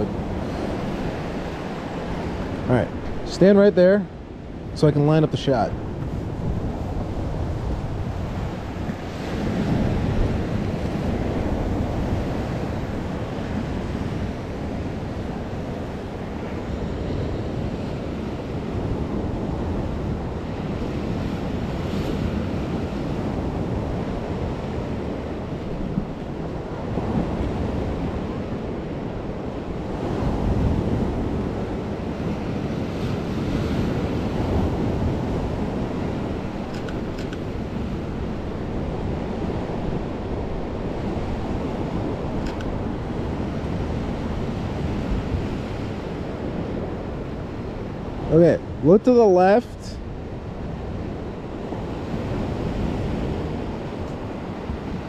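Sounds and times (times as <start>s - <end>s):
waves washing against rocky shore: 0.0s - 55.0s
wind buffeting microphone: 0.0s - 55.0s.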